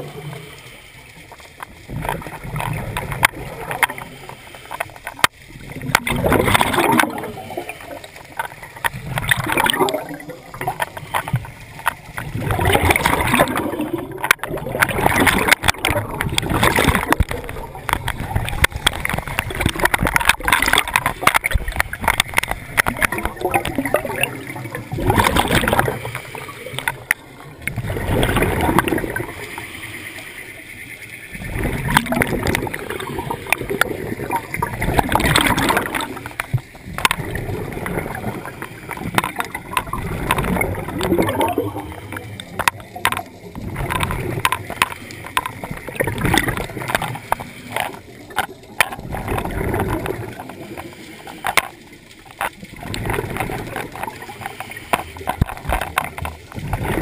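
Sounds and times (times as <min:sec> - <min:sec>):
scuba regulator bubbling breaths: 0:31.4 - 0:57.0.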